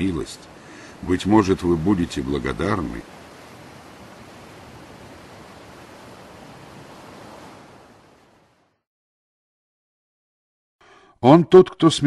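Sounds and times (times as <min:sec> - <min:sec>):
surf noise: 0:00.0 - 0:08.8.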